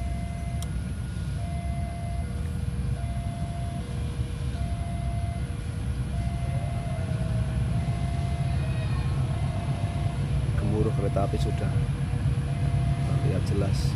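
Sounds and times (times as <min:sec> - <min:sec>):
level crossing alarm two tones: 0:00.0 - 0:00.6, 0:01.4 - 0:03.9, 0:04.6 - 0:05.5, 0:06.1 - 0:08.6, 0:09.3 - 0:11.8, 0:12.4 - 0:13.6
train rumble: 0:00.0 - 0:13.9.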